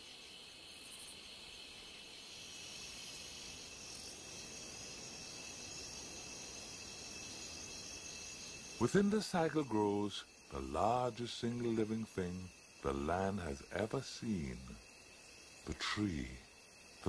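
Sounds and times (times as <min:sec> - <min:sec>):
insect chorus drones: 0:00.0 - 0:17.0.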